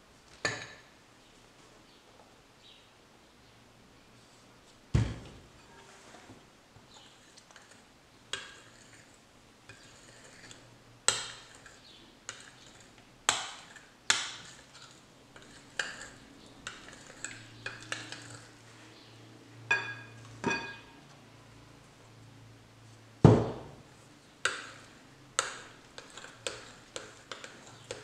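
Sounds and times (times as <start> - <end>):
metal utensil clinking glass bowl: 19.7 - 21.0.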